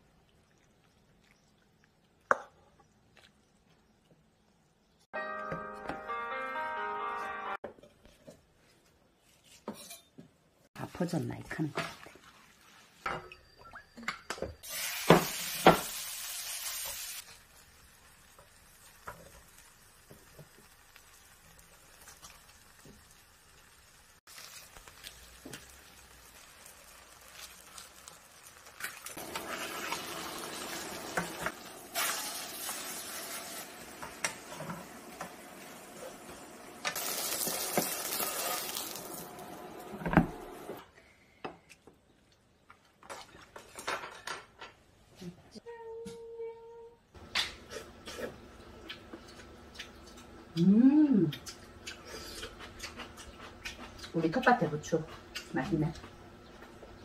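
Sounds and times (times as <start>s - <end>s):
pancake sizzling in a pan: 14.6s - 39.6s.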